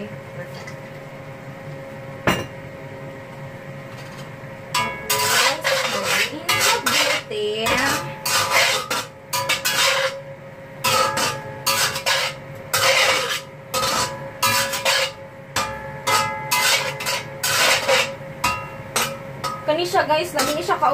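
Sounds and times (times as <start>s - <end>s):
spatula scraping a steel wok: 4.8s - 10.2s, 10.8s - 20.9s.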